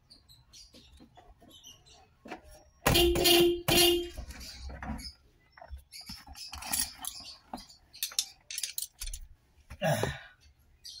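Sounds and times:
small clicks and rattles: 0:06.1 - 0:09.3.

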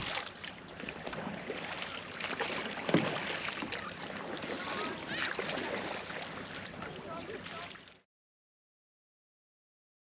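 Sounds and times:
paddle splashing water: 0:00.0 - 0:08.0.

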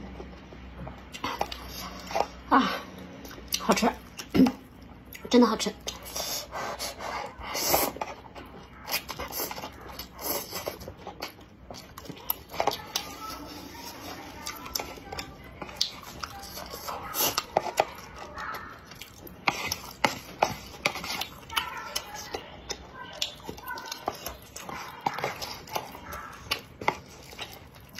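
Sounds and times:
chewing with wet smacks: 0:00.0 - 0:27.9
slurping noodles: 0:05.9 - 0:11.4.

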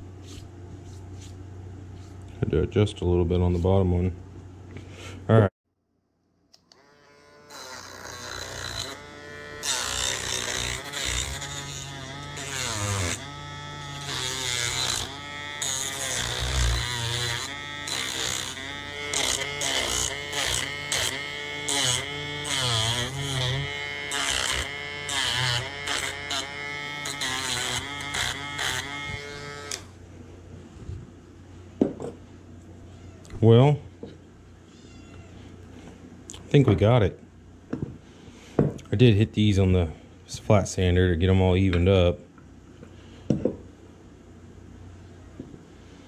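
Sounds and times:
rotary tool whining: 0:06.6 - 0:30.0.

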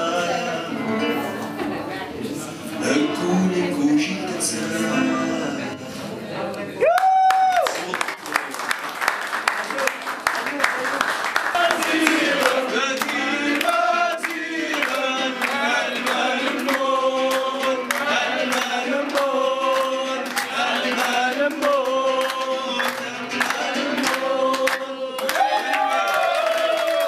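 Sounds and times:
man singing into a microphone: 0:00.0 - 0:01.1, 0:02.7 - 0:05.9
crowd clapping along: 0:06.8 - 0:27.0.

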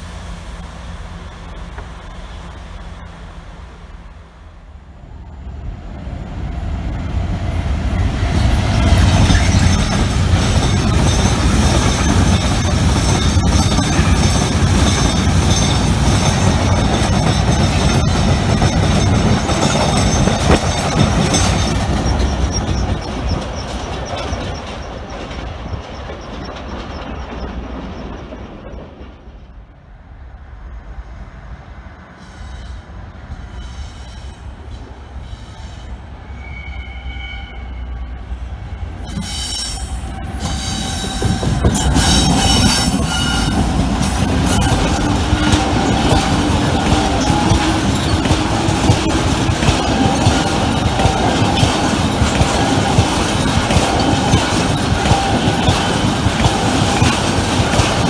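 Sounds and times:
train heavy rumble: 0:00.0 - 0:58.0
wheels clattering over rail joints: 0:08.3 - 0:29.6, 0:40.1 - 0:58.0
high wheel squeal: 0:08.4 - 0:28.2, 0:32.2 - 0:57.5.

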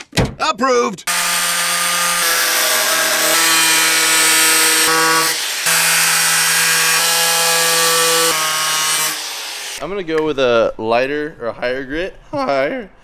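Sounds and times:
angle grinder grinding: 0:01.1 - 0:09.8.

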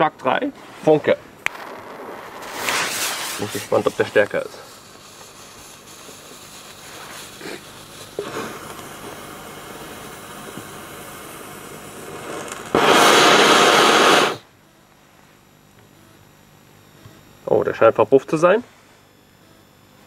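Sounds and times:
firecracker fuse hissing: 0:00.6 - 0:14.5
firecracker rushing fizz: 0:01.4 - 0:14.4.

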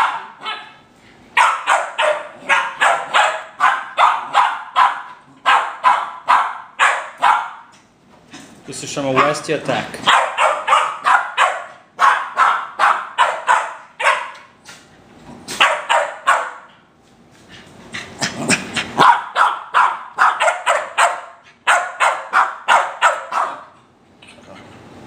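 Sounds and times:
dog barking: 0:00.0 - 0:00.8, 0:01.4 - 0:07.7, 0:09.1 - 0:14.5, 0:15.5 - 0:16.7, 0:19.0 - 0:23.8.

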